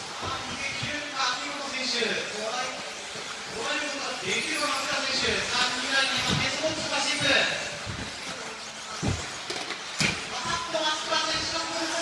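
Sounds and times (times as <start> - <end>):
toy cars landing knocks: 9.1 - 10.3.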